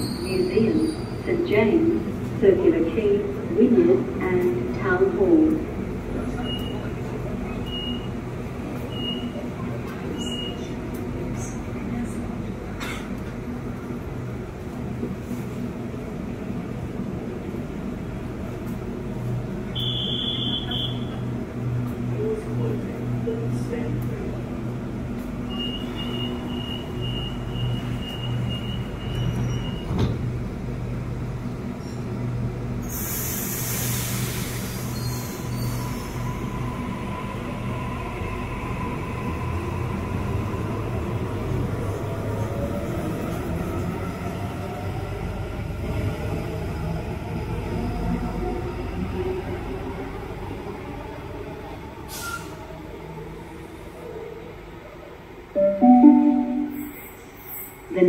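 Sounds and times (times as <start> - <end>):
underground station hum: 0.0 - 57.5
air brakes hissing: 32.8 - 36.1, 52.1 - 52.6
faint low tone: 55.6 - 56.8.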